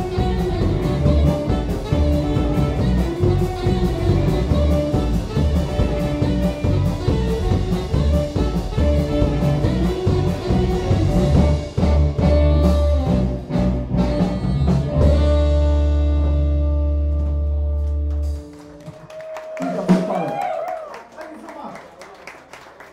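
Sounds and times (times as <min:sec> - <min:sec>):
drum kit hits: 0:00.0 - 0:17.4
electric guitars: 0:00.0 - 0:18.9
saxophone: 0:00.0 - 0:19.0.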